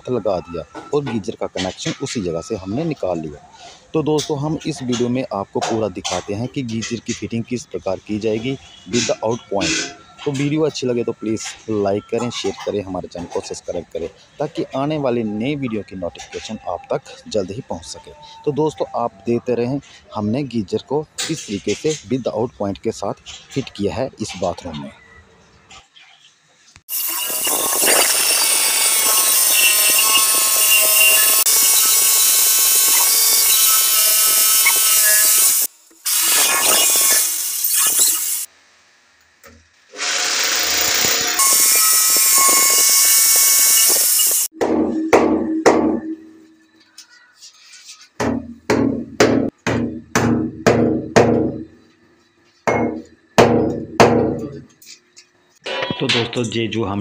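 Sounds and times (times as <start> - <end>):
hammer drill boring into wall: 27.0 - 38.5, 39.9 - 44.5.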